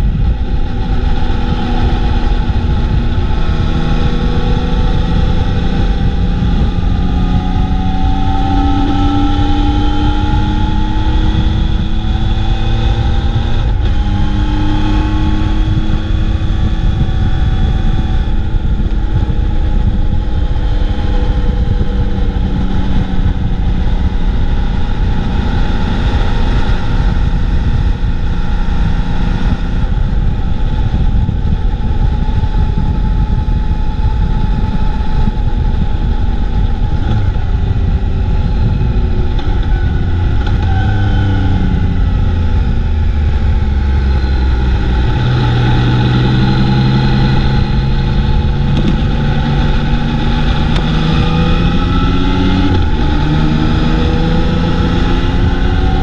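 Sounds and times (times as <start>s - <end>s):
motorcycle engine: 0.0s - 56.0s
wind rumble on microphone: 0.0s - 56.0s.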